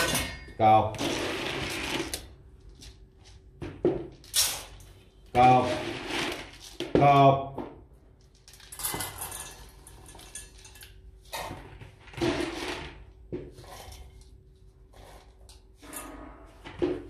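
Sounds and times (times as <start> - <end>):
kibble rattling into metal bowls: 8.2 - 13.1.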